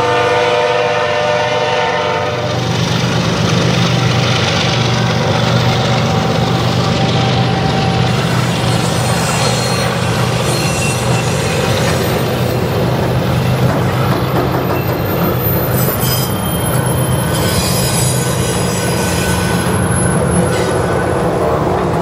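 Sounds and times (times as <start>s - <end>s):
freight train wheels clattering: 1.7s - 22.0s
faint high squealing: 7.2s - 12.6s, 14.6s - 21.1s.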